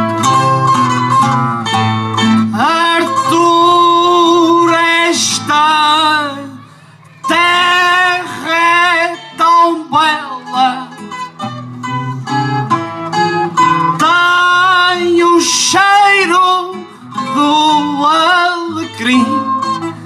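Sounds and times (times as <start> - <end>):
plucked guitar: 0.0 - 20.0
man singing: 2.3 - 11.2, 13.6 - 20.0.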